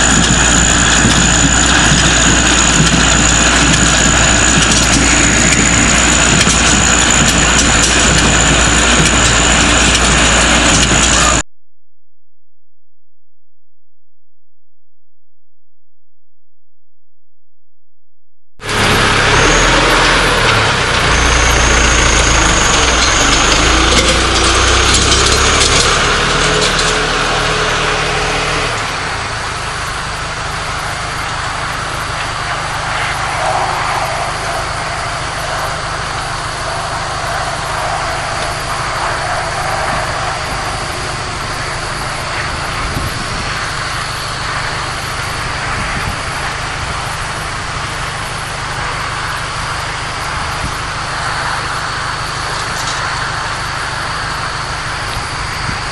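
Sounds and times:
tractor engine running: 0.0 - 11.4, 18.6 - 55.9.

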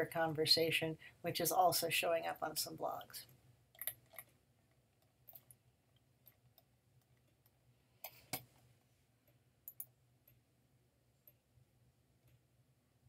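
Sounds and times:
low steady hum: 0.0 - 13.0
computer mouse clicks: 9.7 - 9.9.

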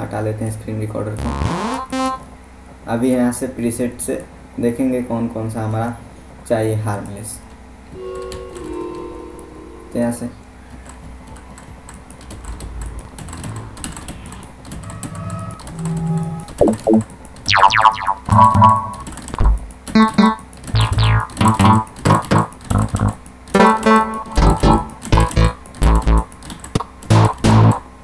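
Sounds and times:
short synth notes: 1.2 - 2.3, 7.9 - 10.6, 15.5 - 26.3
deep bass hits: 18.3 - 19.7, 20.8 - 23.2.

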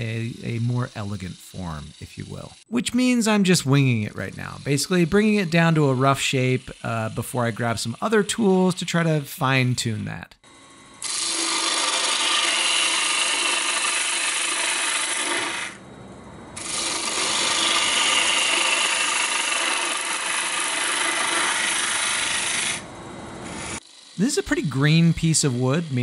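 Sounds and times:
lathe running: 0.0 - 9.3, 10.4 - 15.8, 16.6 - 26.0
lathe gouge cutting wood: 0.0 - 9.6, 10.5 - 15.8, 16.6 - 26.0.

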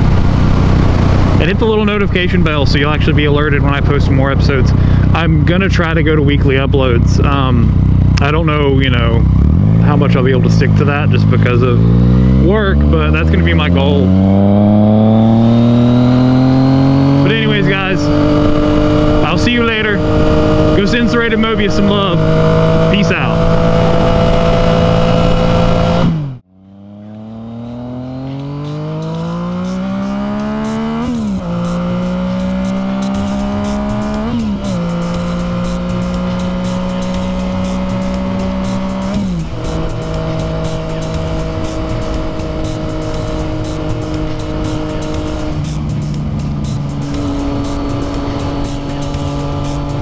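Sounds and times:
motorcycle engine accelerating: 0.0 - 50.0
music with hi-hat beat: 29.4 - 50.0.

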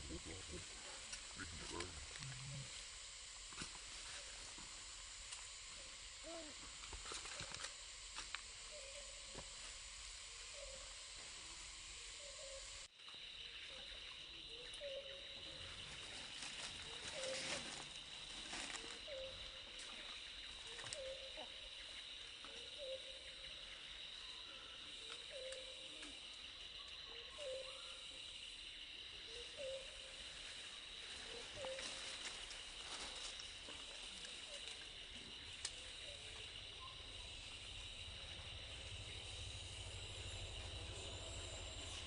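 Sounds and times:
high-pitched insect drone: 0.0 - 42.0.

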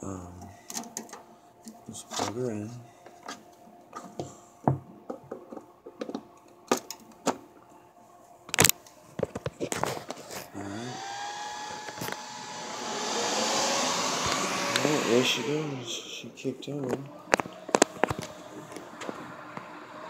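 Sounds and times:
server cooling fans whirring: 9.8 - 20.0.

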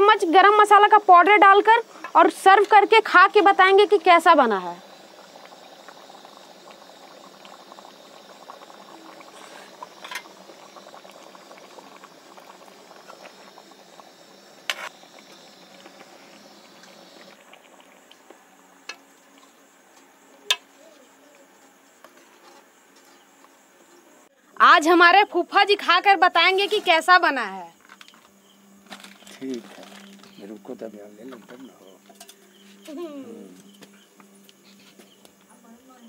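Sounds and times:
curry bubbling: 0.5 - 19.8, 29.0 - 30.6.

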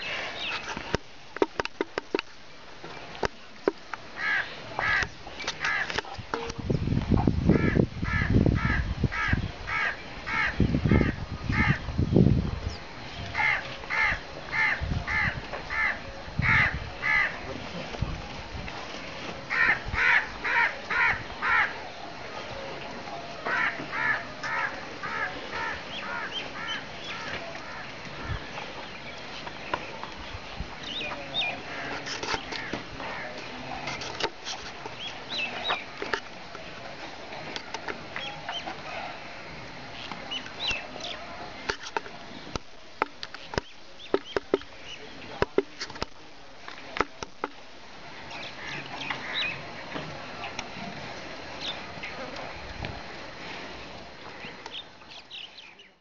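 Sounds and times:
bird calling: 23.4 - 29.9.

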